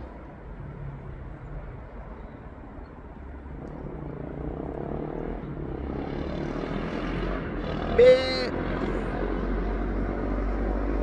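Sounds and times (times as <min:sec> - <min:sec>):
engine drone: 0:00.0 - 0:11.0.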